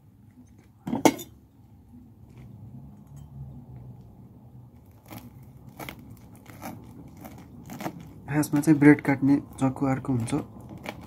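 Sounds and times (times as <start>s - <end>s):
knife cutting through sandwich: 5.0s - 8.1s.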